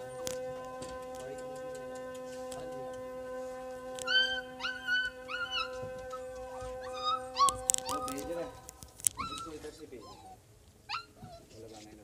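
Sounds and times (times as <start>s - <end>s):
puppies whining and yipping: 4.0s - 11.6s.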